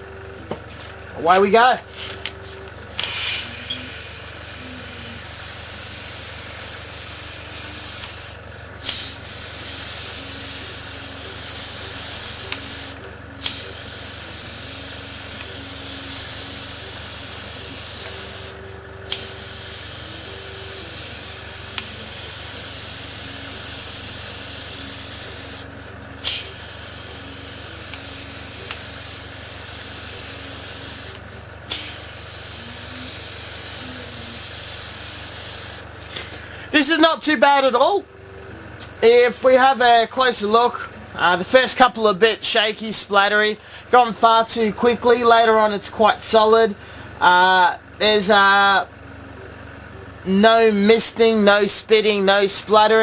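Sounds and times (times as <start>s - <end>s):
airbrush hissing: 1.9s - 35.9s.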